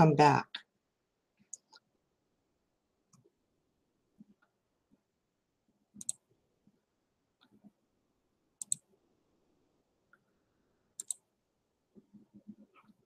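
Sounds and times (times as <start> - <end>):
computer mouse double clicks: 8.6 - 8.8, 11.0 - 11.2.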